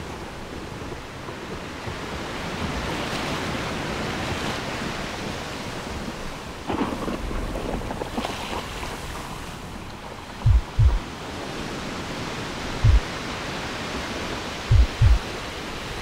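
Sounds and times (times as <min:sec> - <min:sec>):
deep thuds: 0:10.4 - 0:11.0, 0:12.8 - 0:13.1, 0:14.7 - 0:15.2.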